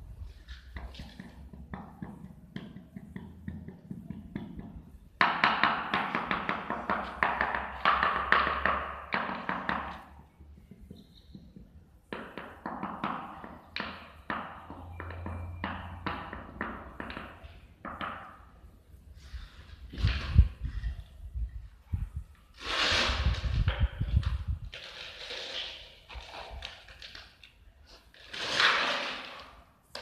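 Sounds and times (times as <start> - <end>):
trowel tapping on tiles: 0.7 - 10.0
trowel scraping strokes: 22.5 - 26.6, 27.9 - 29.6.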